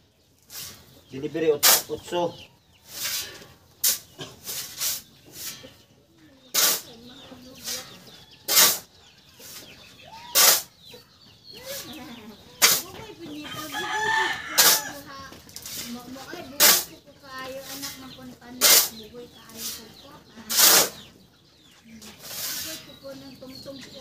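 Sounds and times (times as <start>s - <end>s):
chickens clucking: 0.0s - 24.0s
shovel scraping sand and cement: 0.4s - 2.1s, 2.8s - 5.8s, 6.5s - 9.7s, 10.3s - 10.8s, 12.6s - 12.9s, 13.6s - 21.1s, 22.1s - 23.1s
rooster crowing: 13.5s - 15.1s.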